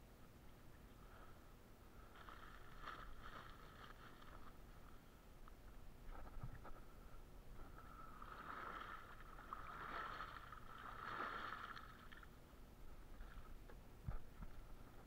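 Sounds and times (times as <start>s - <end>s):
water splashing from kicking legs: 2.1s - 4.5s, 8.1s - 12.4s.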